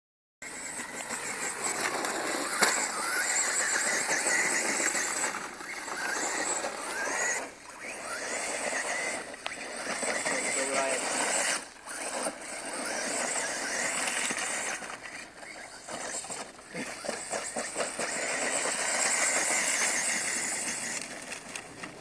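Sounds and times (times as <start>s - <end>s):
electric motor whining: 0.4s - 22.0s.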